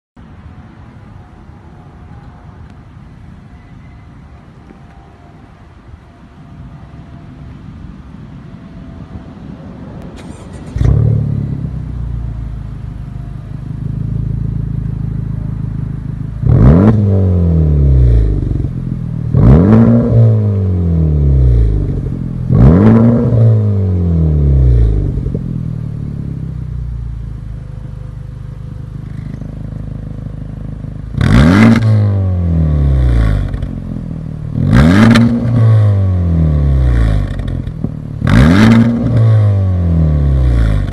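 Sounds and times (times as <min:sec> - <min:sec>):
car engine starting and idling: 0:08.9 - 0:40.9
car engine revving: 0:10.1 - 0:40.9.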